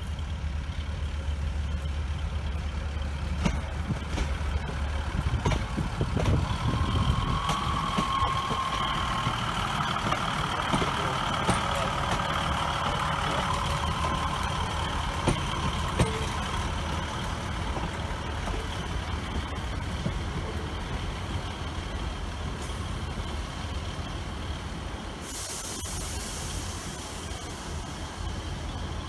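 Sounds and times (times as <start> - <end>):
diesel engine low rumble: 0.0 - 29.0
train wheels clicking over rail joints: 0.0 - 29.0.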